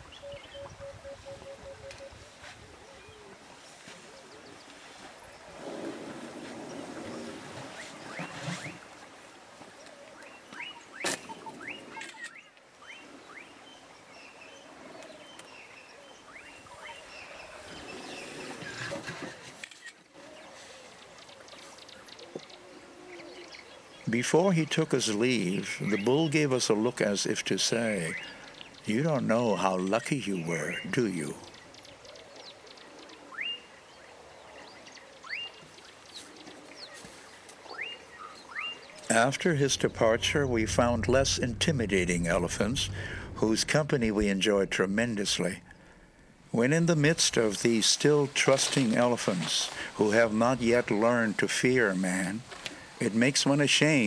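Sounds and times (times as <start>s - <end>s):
birds chirping: 9.7s - 53.3s.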